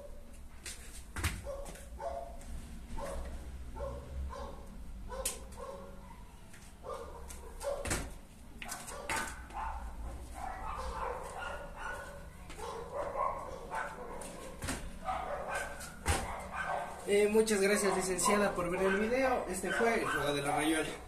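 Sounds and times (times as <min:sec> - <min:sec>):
feet landing on wooden floor: 0:00.6 - 0:01.9, 0:07.8 - 0:09.6, 0:14.2 - 0:15.0, 0:15.8 - 0:16.4
dog barking and yelping: 0:01.4 - 0:02.4, 0:03.0 - 0:07.9, 0:08.6 - 0:17.1, 0:17.7 - 0:20.6.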